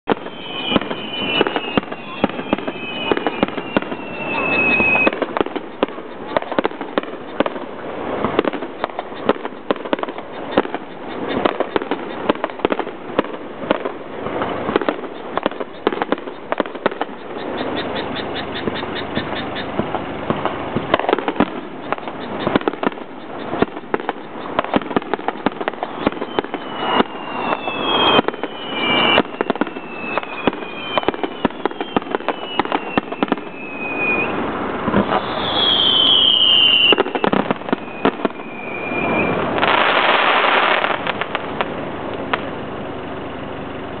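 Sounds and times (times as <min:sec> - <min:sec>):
firework whistles falling in pitch: 0:00.0 - 0:07.6, 0:14.8 - 0:18.9, 0:20.9 - 0:41.2
rushing crackling firework burst: 0:00.0 - 0:18.8, 0:19.7 - 0:43.9
fireworks cracking and popping: 0:00.0 - 0:42.7.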